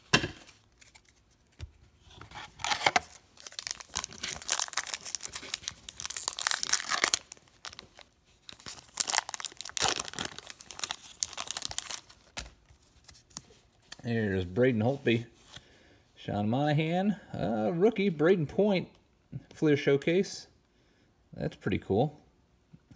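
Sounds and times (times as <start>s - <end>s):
foil wrapper tearing and crinkling: 0.4s - 1.5s, 2.6s - 12.5s.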